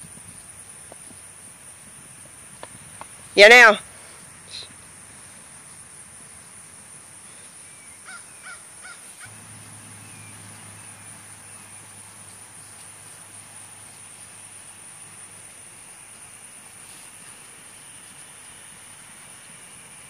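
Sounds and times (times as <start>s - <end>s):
bird calls: 7.3s - 12.8s.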